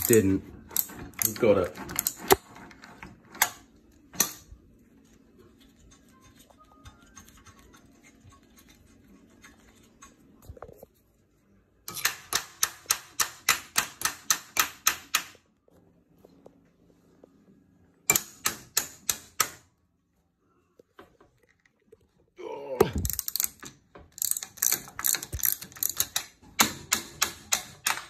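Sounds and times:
ratchet wrench clicking: 23.1s - 28.0s.

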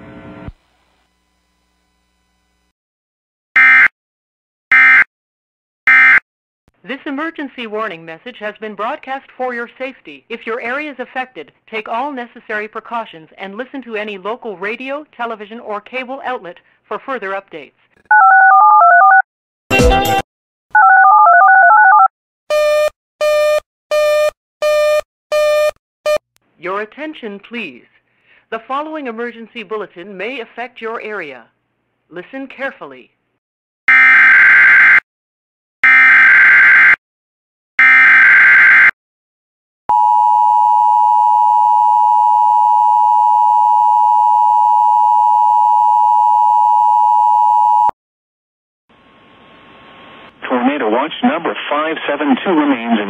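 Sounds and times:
touch-tone dialing tones: 18.1s - 19.2s, 20.8s - 22.1s.

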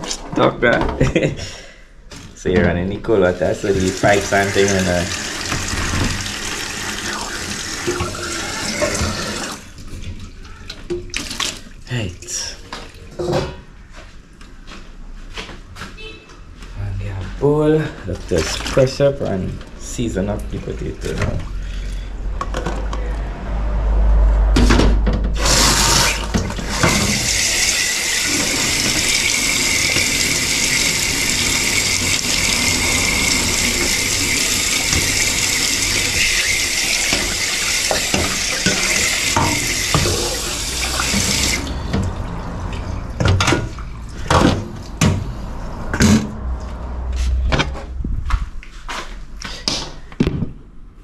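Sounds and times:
metal bowl being rinsed: 3.2s - 10.0s, 18.2s - 18.9s, 25.4s - 44.6s
sharp knocks and clatters: 24.5s - 25.4s.

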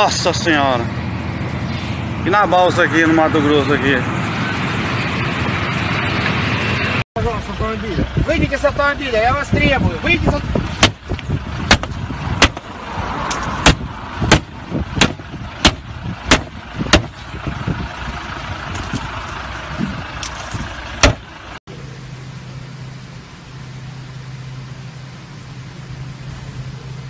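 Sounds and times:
vehicle engine rumble: 0.0s - 27.0s
sharp knocks: 10.8s - 12.7s, 13.6s - 17.2s, 21.0s - 21.2s.

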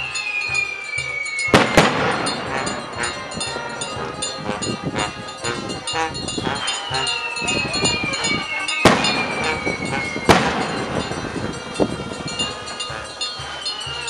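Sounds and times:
rocket whistling falling in pitch: 0.0s - 3.4s, 6.6s - 11.5s
sharp firework bangs: 1.5s - 3.1s, 8.8s - 11.6s.

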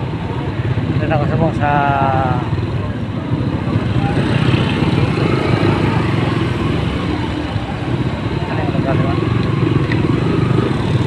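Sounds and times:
motorcycle engine running: 0.0s - 11.0s
road noise: 0.0s - 11.0s.

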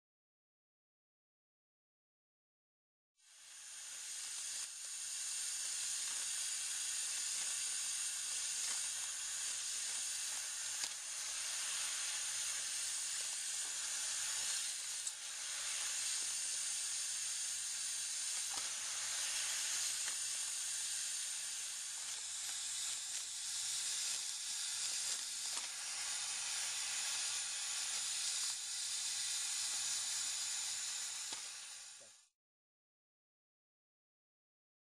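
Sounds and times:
air hissing through suction rig: 3.2s - 32.3s.

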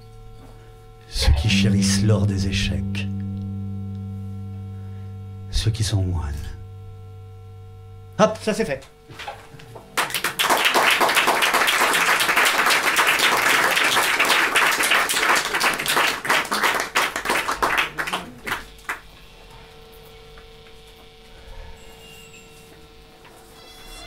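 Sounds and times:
faint electrical hum: 0.0s - 24.0s
audience applauding: 10.0s - 19.1s.

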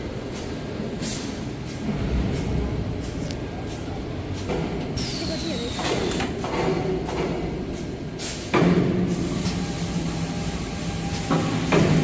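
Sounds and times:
machine hum and clatter: 0.0s - 12.0s
machine clunk: 5.8s - 7.6s, 8.3s - 9.1s, 11.2s - 12.0s.

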